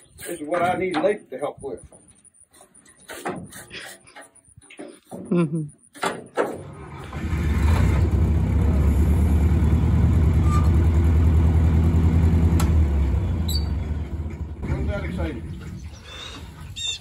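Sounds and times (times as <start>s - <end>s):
combine engine starting and running: 6.5s - 16.6s.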